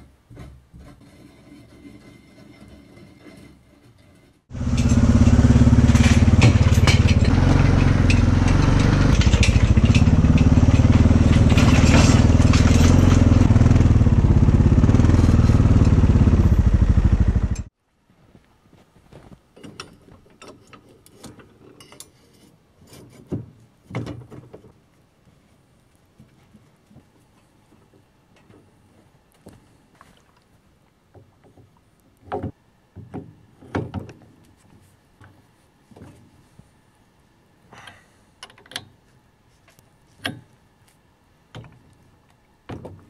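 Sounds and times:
quad bike engine running: 4.5 - 17.7.

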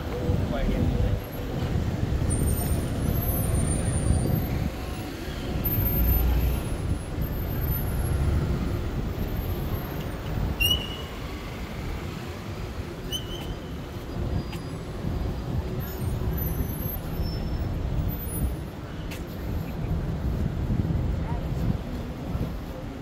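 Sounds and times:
street traffic rumble: 0.0 - 23.0
high squeak: 13.0 - 13.6.

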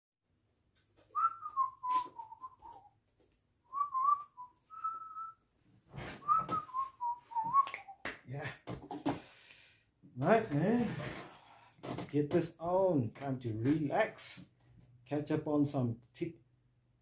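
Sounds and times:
person whistling a tune: 1.2 - 2.9, 3.7 - 5.4, 6.2 - 8.0.

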